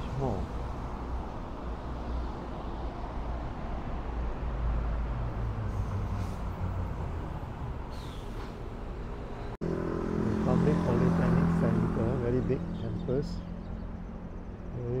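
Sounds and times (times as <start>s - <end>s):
road traffic rumble: 0.0s - 15.0s
vehicle passing by: 0.0s - 15.0s.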